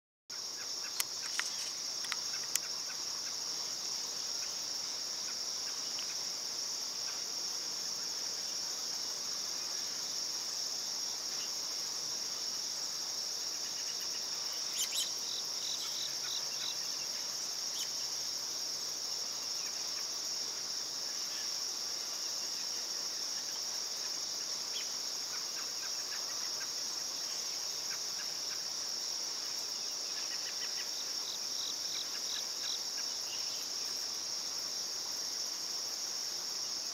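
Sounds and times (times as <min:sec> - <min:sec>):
insect chirps: 0:00.3 - 0:36.9
insect high-pitched trill: 0:00.3 - 0:36.9
sharp clicks: 0:00.9 - 0:02.7.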